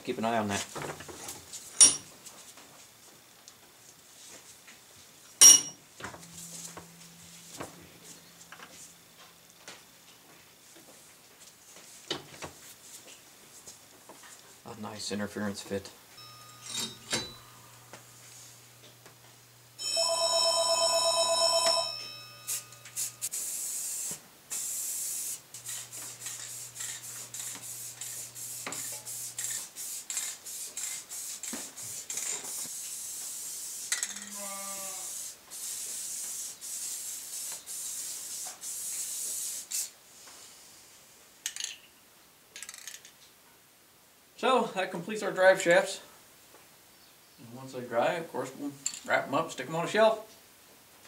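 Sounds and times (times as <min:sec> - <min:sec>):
bell ring: 0:05.4 - 0:08.0, 0:16.2 - 0:17.8, 0:19.8 - 0:23.3
spray paint hissing: 0:22.5 - 0:34.2, 0:35.0 - 0:40.6.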